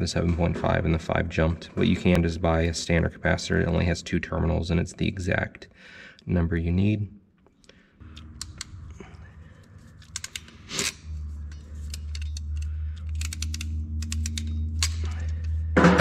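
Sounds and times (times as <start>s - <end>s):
steady low hum: 0.0s - 16.0s
crimping tool clicks and snips: 11.9s - 15.2s.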